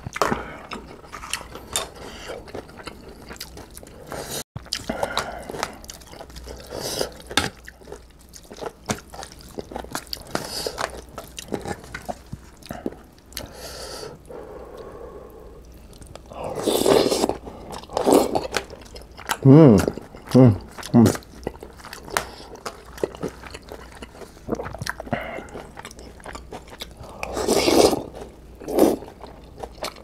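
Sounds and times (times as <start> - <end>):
chewing: 0.0 - 13.6, 14.3 - 30.0
slurping noodles: 16.4 - 18.5, 27.0 - 29.0.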